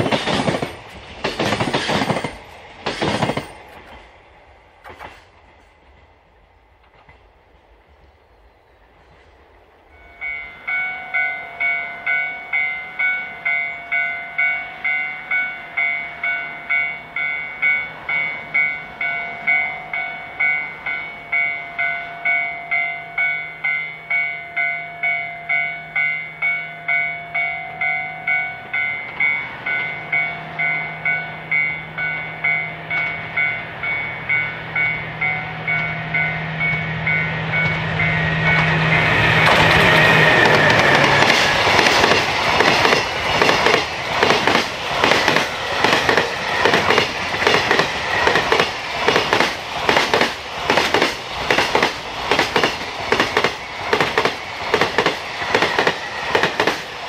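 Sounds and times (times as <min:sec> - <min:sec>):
diesel locomotive drone: 0:00.0 - 0:57.0
level crossing bell ringing: 0:10.0 - 0:39.2.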